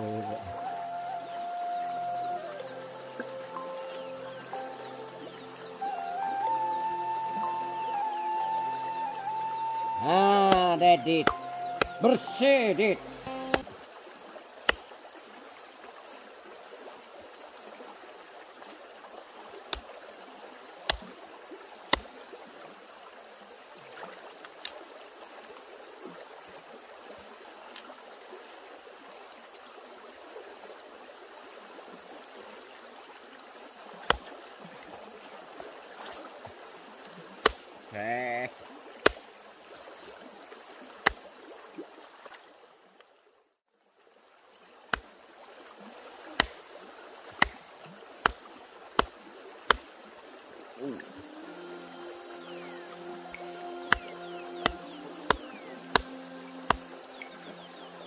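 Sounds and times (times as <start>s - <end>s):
stream running over stones: 0.0s - 58.0s
machete chopping meat on wood: 37.4s - 37.6s, 46.4s - 46.6s, 47.4s - 47.6s, 53.9s - 56.1s.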